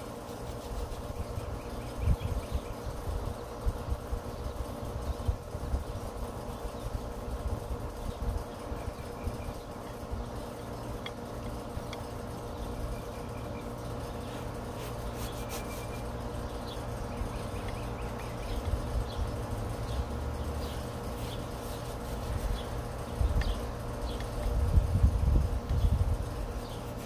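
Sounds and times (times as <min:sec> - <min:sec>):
low mechanical hum: 0:00.0 - 0:27.0
scratches: 0:00.2 - 0:01.3, 0:14.1 - 0:16.2, 0:21.2 - 0:22.8
wind rumbling on microphone: 0:24.4 - 0:26.4.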